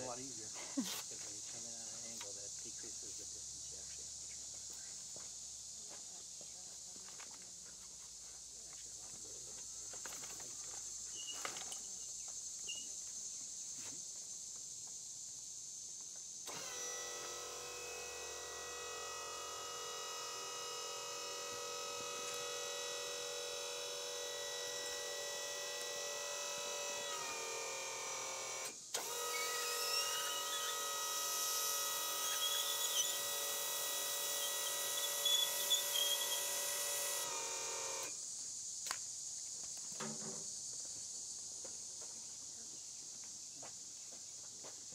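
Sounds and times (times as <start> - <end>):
seat lift motor whining: 16.5 - 38.2.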